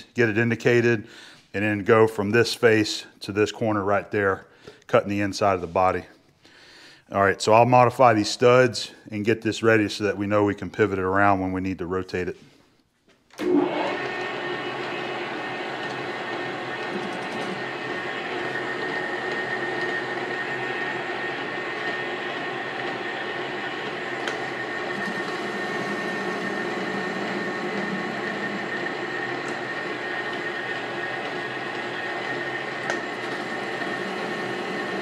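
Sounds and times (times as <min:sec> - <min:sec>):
power tool cutting steel: 0:13.4 - 0:35.0.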